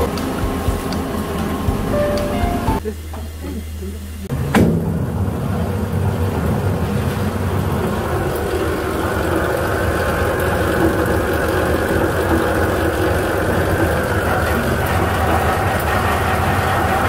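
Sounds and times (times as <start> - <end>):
low machine hum: 0.0 - 17.0
roller mill grinding: 5.2 - 17.0.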